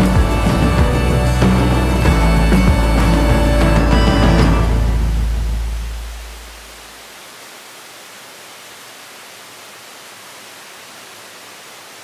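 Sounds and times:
background music: 0.0 - 6.2
waterfall rushing: 0.0 - 12.0.

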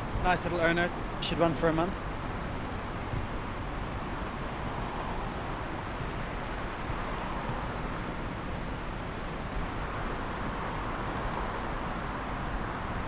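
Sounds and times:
city street traffic: 0.0 - 13.0
faint high whine: 10.4 - 12.7.

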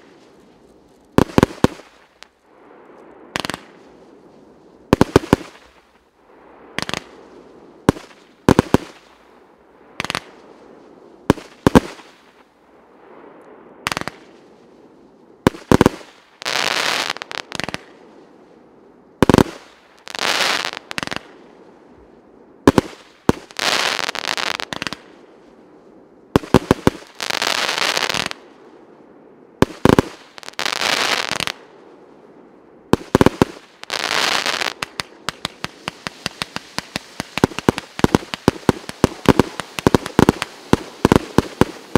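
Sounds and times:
firework crackling: 0.0 - 2.5, 4.9 - 6.0, 15.5 - 18.0, 19.2 - 21.4, 22.7 - 25.2, 26.4 - 28.4, 29.6 - 31.6, 33.0 - 41.9
fireworks launching and bursting: 0.0 - 2.5, 3.3 - 4.1, 4.9 - 6.1, 6.7 - 9.3, 11.3 - 12.5, 13.8 - 14.4, 15.4 - 18.1, 19.2 - 21.4, 22.6 - 25.2, 26.4 - 28.5, 29.6 - 31.7, 32.9 - 41.9.

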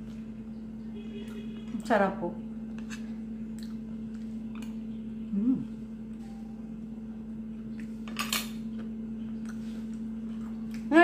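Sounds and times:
steady low hum: 0.0 - 11.0
cutlery scraping a plate: 2.8 - 3.1
person humming while tasting: 5.2 - 5.9.

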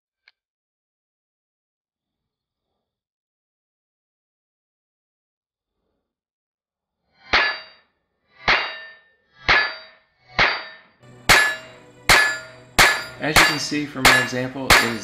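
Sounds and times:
steel target ringing clang: 7.3 - 7.8, 8.5 - 15.0.

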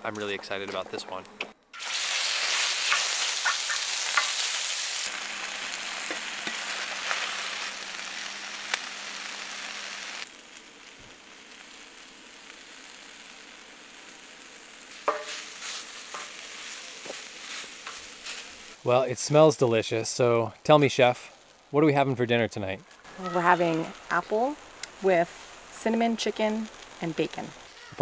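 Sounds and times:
meat sizzling in a frying pan: 1.8 - 21.8, 22.8 - 28.0
wooden spoon scraping a pan: 15.0 - 18.5.

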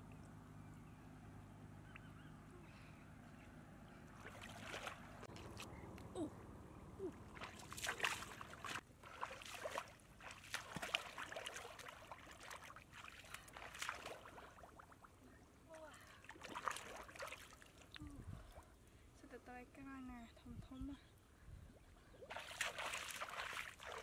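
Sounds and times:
splashing in shallow muddy water: 4.0 - 6.4, 7.0 - 18.8, 21.8 - 24.0.

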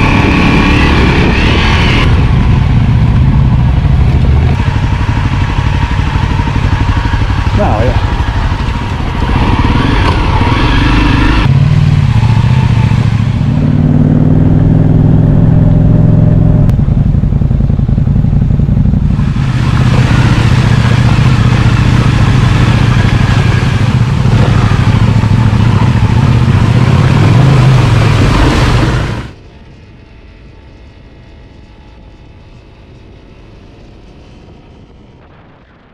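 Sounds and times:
motorcycle engine running: 0.0 - 35.5
water spray and splashing: 19.2 - 24.9.

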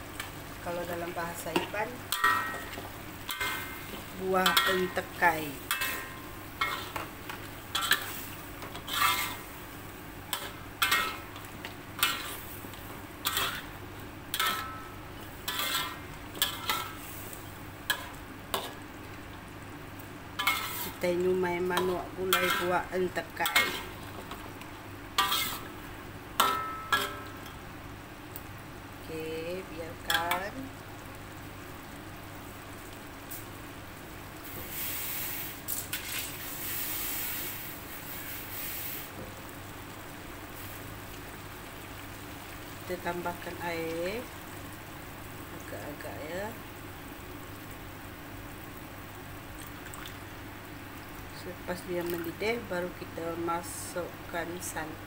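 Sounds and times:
food sizzling in a wok: 0.0 - 55.0
metal spatula scraping a wok: 5.7 - 9.5, 10.3 - 11.4, 12.0 - 12.6, 13.2 - 13.7, 14.3 - 18.8, 20.4 - 21.0, 22.3 - 22.8, 23.4 - 24.0, 25.2 - 25.7, 26.4 - 27.3.

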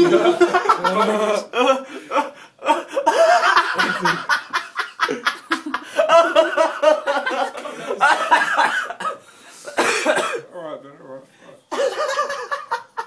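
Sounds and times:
people laughing: 0.0 - 9.2, 11.8 - 13.0.

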